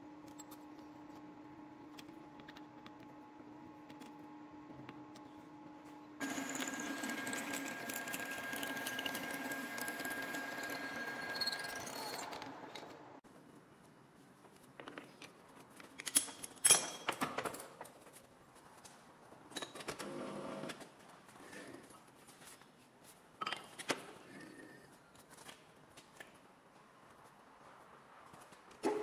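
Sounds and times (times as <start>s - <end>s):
machine running with high whine: 6.2s - 13.2s.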